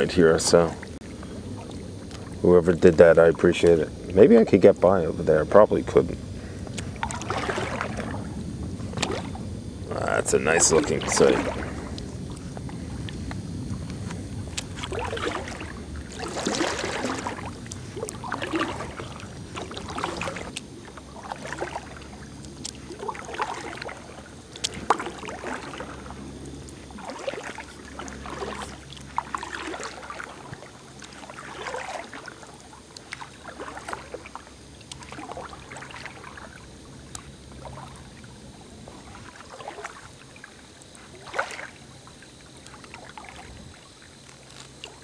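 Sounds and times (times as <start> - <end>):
paddle strokes swishing through water: 0.0 - 2.8, 6.4 - 45.0
low rumble: 4.7 - 23.0.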